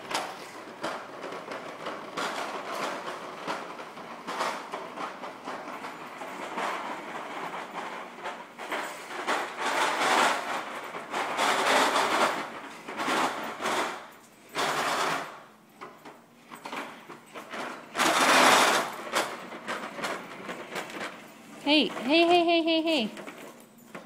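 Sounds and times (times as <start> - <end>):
plastic toy wheels rattling on carpet: 0.0 - 24.0.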